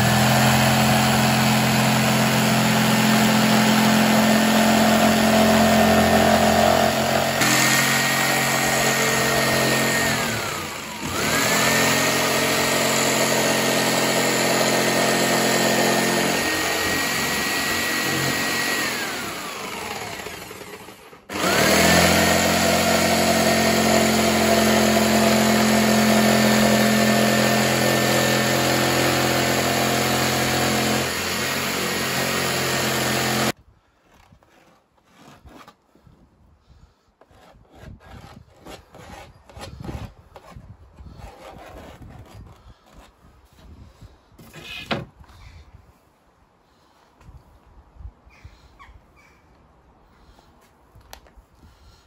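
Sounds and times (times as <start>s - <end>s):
electric jigsaw cutting: 0.0s - 33.6s.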